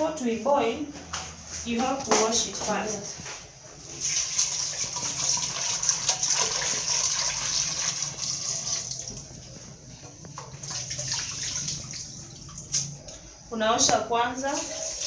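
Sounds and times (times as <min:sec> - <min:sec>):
tap water splashing in metal pot: 0:04.0 - 0:09.3.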